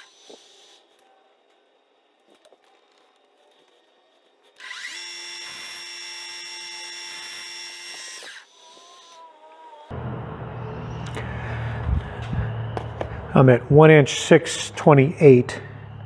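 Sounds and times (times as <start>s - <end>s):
lathe spindle gear whine: 0.0s - 9.2s, 9.9s - 16.0s
loud low hum: 9.9s - 16.0s.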